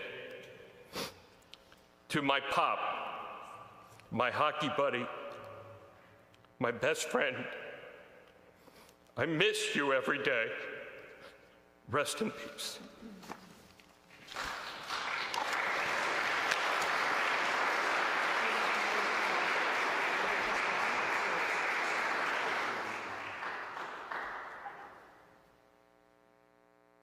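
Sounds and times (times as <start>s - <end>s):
congregation applauding: 14.2s - 25.2s.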